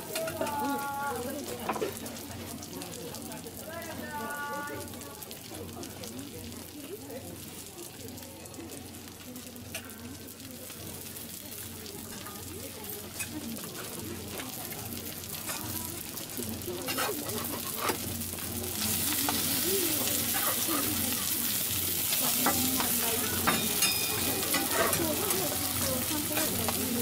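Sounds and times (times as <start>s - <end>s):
pancakes sizzling on griddle: 0.0s - 27.0s
metal spatulas scraping and clacking: 16.9s - 18.1s, 22.4s - 25.4s.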